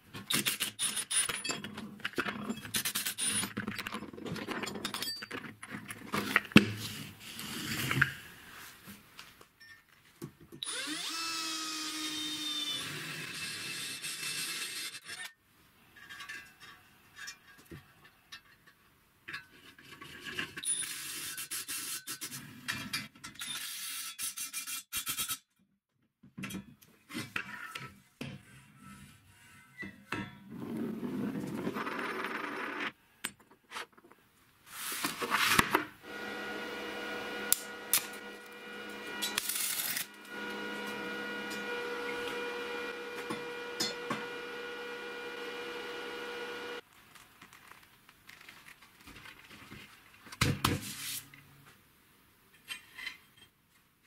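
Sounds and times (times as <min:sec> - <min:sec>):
steady hum with held tones: 0:36.0 - 0:46.8
metal scraping and clinking: 0:37.4 - 0:44.3.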